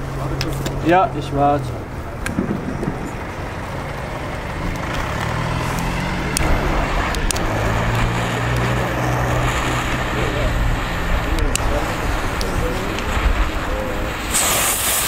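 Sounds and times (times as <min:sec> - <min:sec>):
low engine hum: 0:00.0 - 0:15.0.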